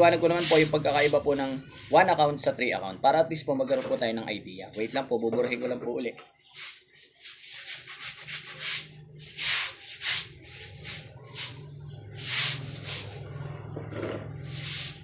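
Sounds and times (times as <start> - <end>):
whiteboard being wiped: 0.0 - 2.2, 6.6 - 13.2, 14.5 - 15.0.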